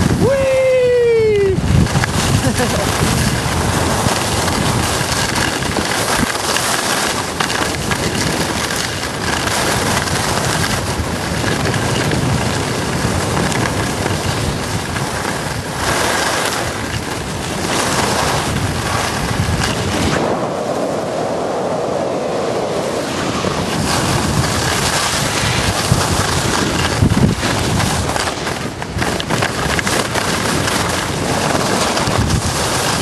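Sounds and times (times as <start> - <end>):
wind on microphone: 0.0 - 33.0
skis hissing on snow: 2.0 - 5.2, 22.4 - 28.2.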